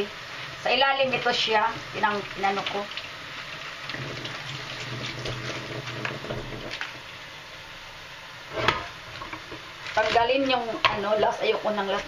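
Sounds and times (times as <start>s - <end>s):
tap water splashing in sink: 2.2s - 6.9s.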